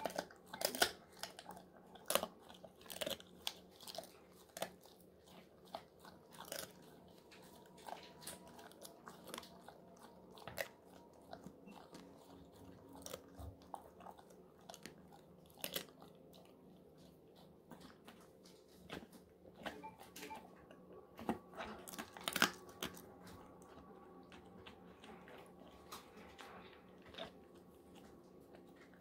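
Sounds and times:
dog crunching a chew treat: 0.0s - 29.0s.

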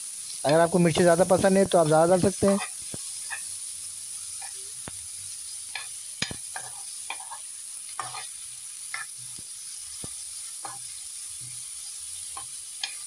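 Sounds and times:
vegetables sizzling in oil: 0.0s - 13.0s
metal spoon scraping a pan: 2.4s - 3.5s, 4.3s - 4.8s, 5.7s - 9.4s, 10.5s - 11.6s, 12.2s - 13.0s.

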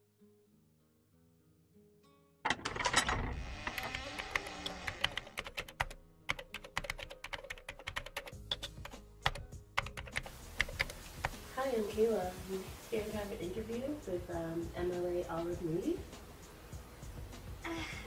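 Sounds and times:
keyboard typing: 3.6s - 11.4s.

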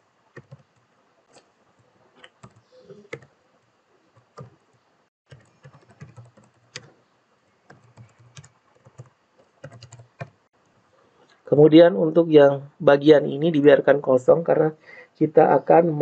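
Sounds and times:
faint keyboard typing: 0.3s - 11.4s.

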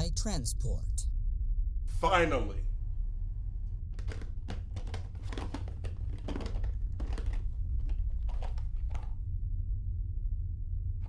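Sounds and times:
steady low hum: 0.0s - 11.0s
packaging crinkling: 4.0s - 9.2s.

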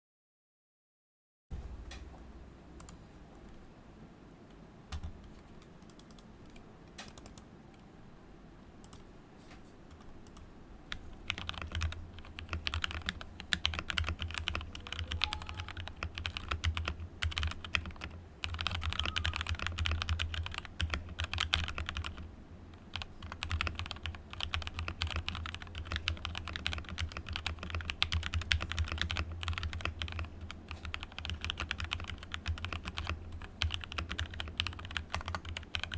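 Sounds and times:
typing on mechanical keyboard: 4.9s - 7.4s, 10.2s - 35.9s.

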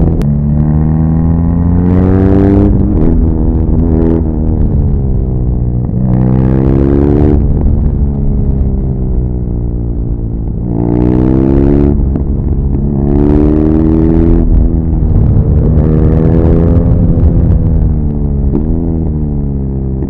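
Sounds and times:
motorcycle engine accelerating hard: 0.0s - 20.0s.

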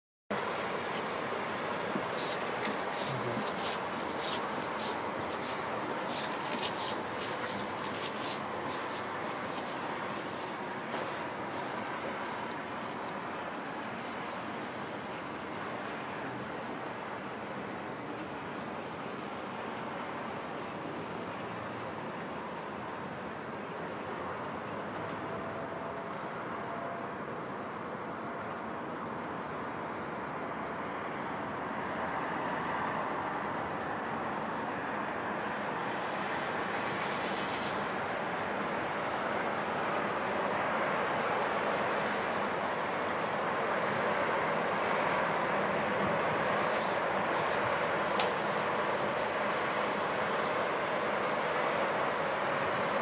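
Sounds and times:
distant city background noise: 0.3s - 53.0s
short high rustling hisses: 2.1s - 10.6s, 46.6s - 47.0s, 48.3s - 48.7s, 49.4s - 50.6s, 51.2s - 52.4s.

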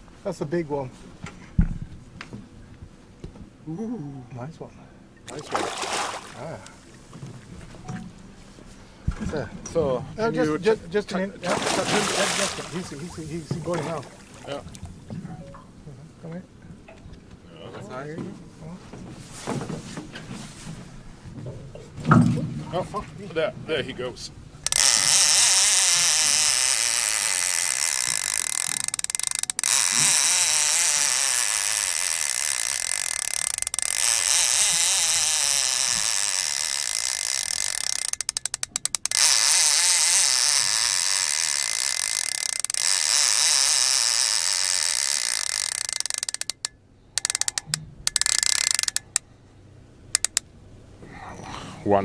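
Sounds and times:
fishing reel drag buzzing: 24.6s - 49.2s, 50.1s - 50.4s.

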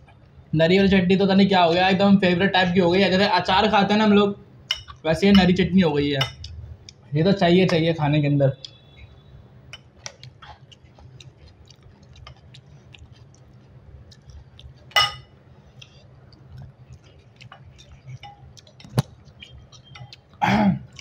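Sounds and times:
chewing and wet mouth clicks: 9.8s - 15.0s, 15.7s - 21.0s
utensil clinking on dishware: 14.9s - 15.3s
serving spoon clattering in glass bowl: 15.0s - 15.3s.

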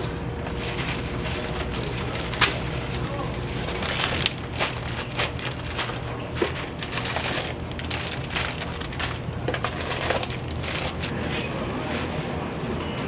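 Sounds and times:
steady low hum: 0.0s - 12.6s
plastic bags crinkling: 0.5s - 11.1s.

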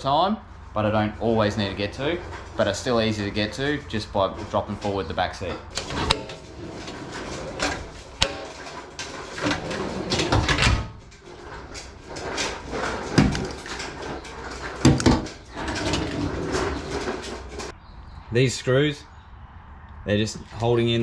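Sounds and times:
metal clatter: 1.2s - 17.7s
drawers sliding on runners: 1.3s - 17.7s.

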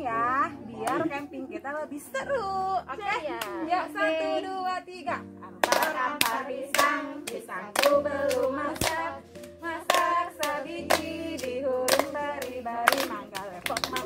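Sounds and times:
women singing: 0.0s - 14.0s
hand clapping: 5.6s - 9.0s, 9.9s - 14.0s.

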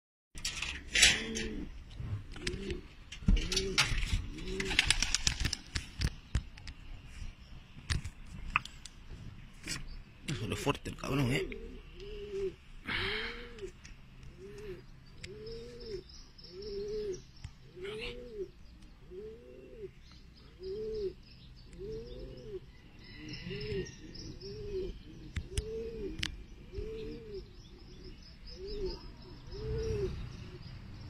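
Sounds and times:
pigeon cooing: 0.5s - 5.3s, 11.2s - 30.8s
small birds chirping: 1.0s - 31.0s.

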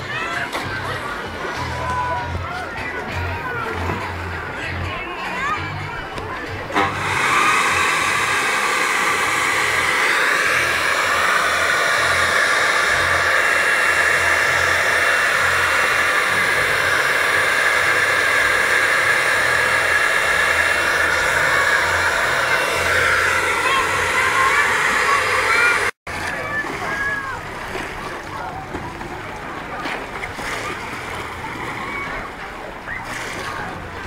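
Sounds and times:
electric leaf blower running: 6.8s - 26.0s.

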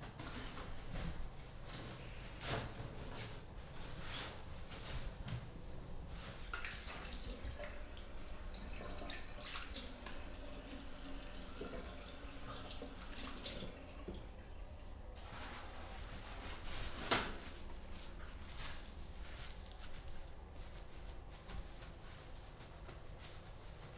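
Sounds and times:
water splashing at sink: 6.4s - 14.7s
tap running into washbasin: 6.5s - 14.4s.

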